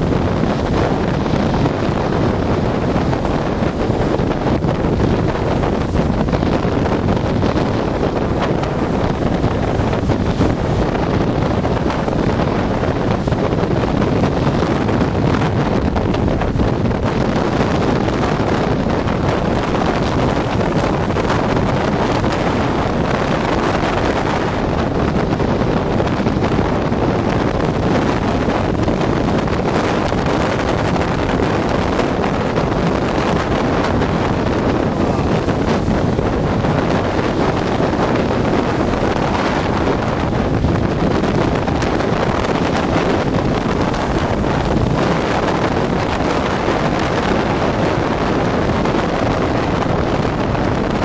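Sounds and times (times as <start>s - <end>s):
storm surf breaking: 0.0s - 51.0s
wind buffeting microphone: 0.0s - 51.0s.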